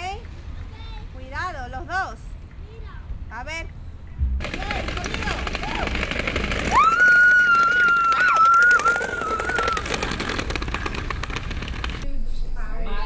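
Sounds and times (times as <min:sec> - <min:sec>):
scooter wheels rattling on asphalt: 0:04.4 - 0:12.0.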